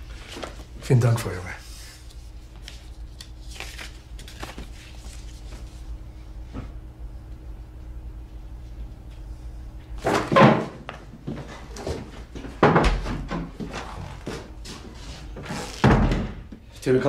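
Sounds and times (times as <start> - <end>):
low steady hum: 0.0 - 17.0
hurried footsteps: 10.8 - 16.7
chair scraping and rustle: 13.2 - 16.1.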